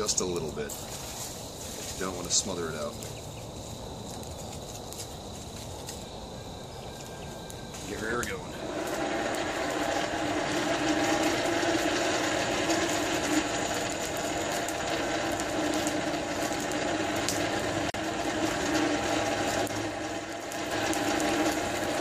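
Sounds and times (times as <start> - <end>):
hand-cranked blower whirring: 7.8 - 22.0.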